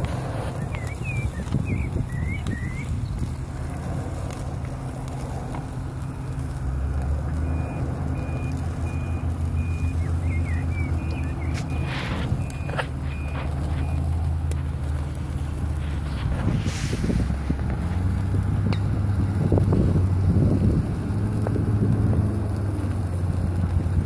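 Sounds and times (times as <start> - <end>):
low rumble: 0.0 - 24.0
reversing alarm beeping: 7.3 - 14.2
short chirps: 7.4 - 14.2.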